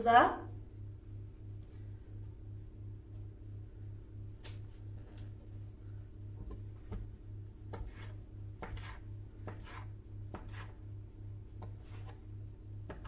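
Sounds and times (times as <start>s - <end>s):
low pulsing hum: 0.0s - 13.0s
knife cutting dough: 6.5s - 10.8s, 11.5s - 13.0s.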